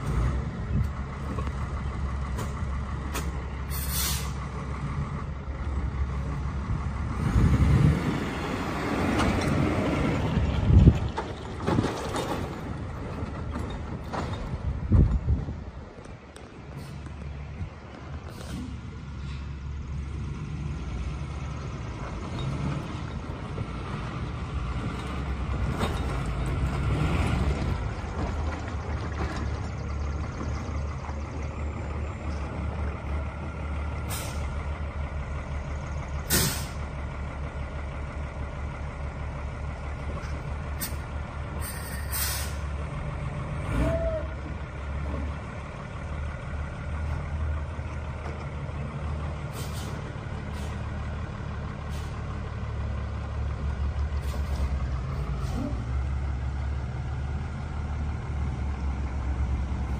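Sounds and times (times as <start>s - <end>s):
diesel truck engine running: 0.0s - 59.9s
tyres on gravel: 8.0s - 19.4s.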